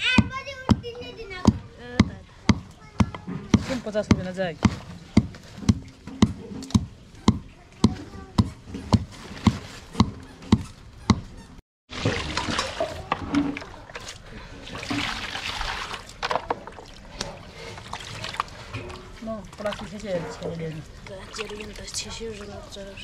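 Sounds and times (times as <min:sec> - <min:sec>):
water splashing in a plastic tub: 0:11.9 - 0:23.0.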